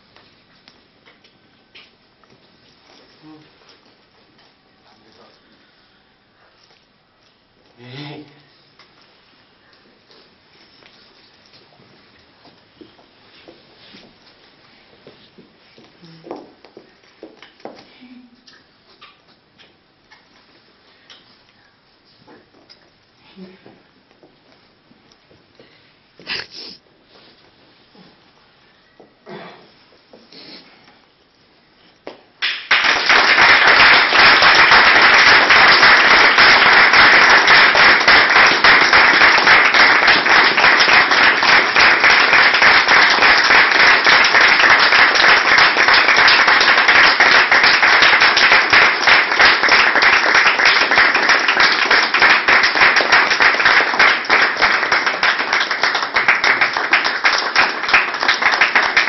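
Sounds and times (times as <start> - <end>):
audience applauding: 32.4 - 59.0.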